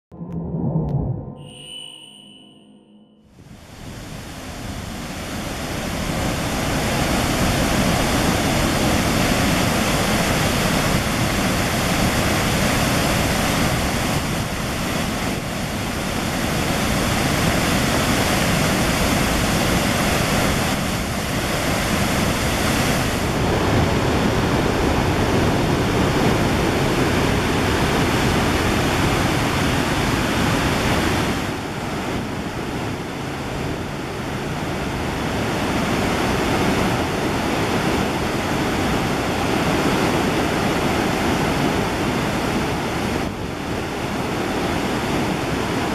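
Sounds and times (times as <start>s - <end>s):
waterfall roaring: 3.7s - 45.9s.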